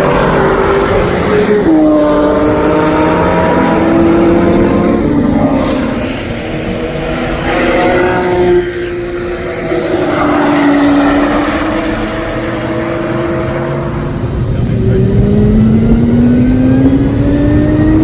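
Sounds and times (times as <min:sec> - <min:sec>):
sports car engines passing: 0:00.0 - 0:18.0.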